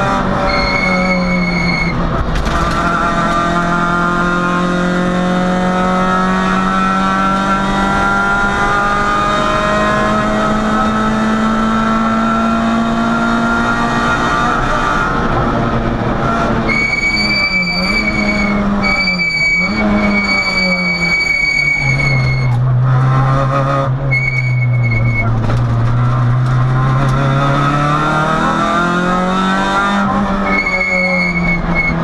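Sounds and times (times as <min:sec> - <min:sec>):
rally car engine high revs: 0:00.0 - 0:32.0
high-pitched tone: 0:00.4 - 0:02.0.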